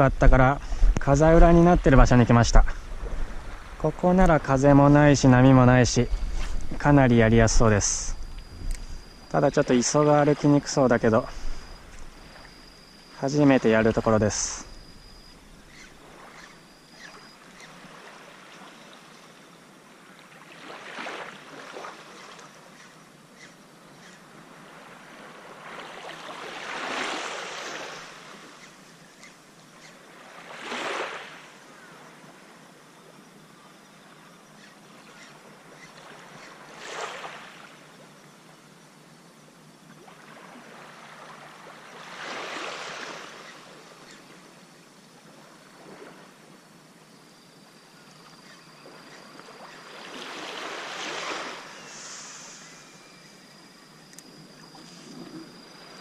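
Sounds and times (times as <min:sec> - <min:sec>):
small waves washing ashore: 0:00.0 - 0:14.8, 0:15.4 - 0:22.8, 0:24.2 - 0:29.0, 0:29.9 - 0:33.2, 0:34.1 - 0:38.9, 0:39.7 - 0:56.0
faint high steady tone: 0:00.0 - 0:20.3, 0:43.0 - 0:56.0.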